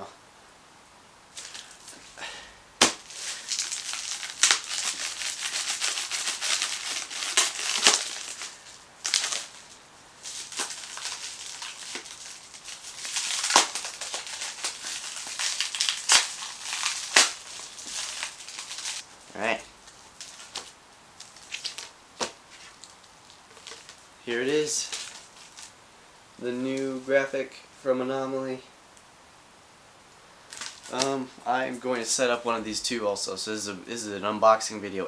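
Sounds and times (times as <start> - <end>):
plastic wrap crinkling: 1.4 - 2.0, 2.8 - 25.7, 30.5 - 31.3
plastic film snapping: 2.8 - 9.7, 10.3 - 19.0, 19.8 - 24.0, 30.5 - 31.2.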